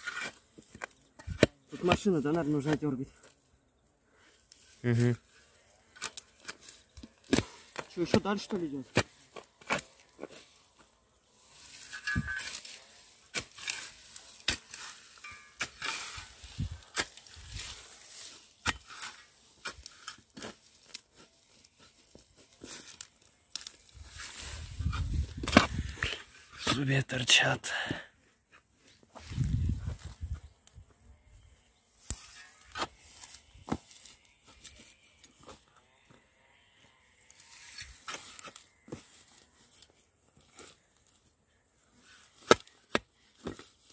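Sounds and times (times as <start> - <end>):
shovel scraping through soil: 0.0 - 2.8, 4.5 - 26.9, 32.0 - 35.6, 37.3 - 41.2.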